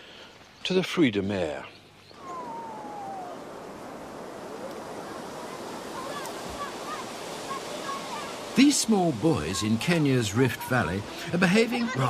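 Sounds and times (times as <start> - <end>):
falling whistle-like call: 2.2 - 5.2
water washing like small waves: 2.2 - 12.0.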